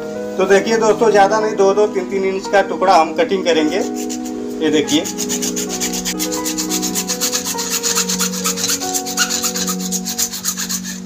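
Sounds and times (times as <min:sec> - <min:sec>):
background music: 0:00.0 - 0:11.0
hacksaw cutting plastic pipe: 0:03.7 - 0:11.0.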